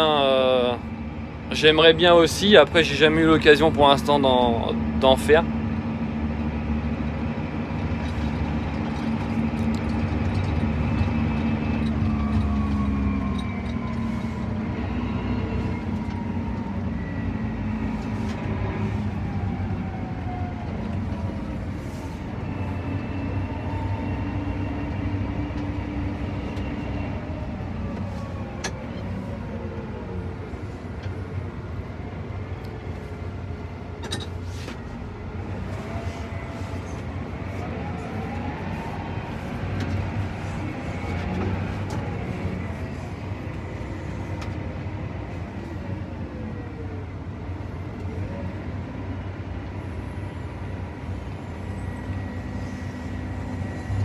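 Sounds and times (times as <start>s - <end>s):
tractor engine drone: 0.0s - 54.0s
whining tones sliding in pitch: 51.5s - 54.0s.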